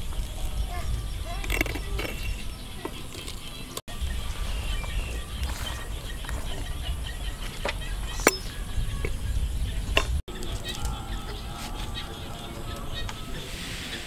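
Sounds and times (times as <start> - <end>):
metal spoon knocking clay pot: 7.4 - 9.2.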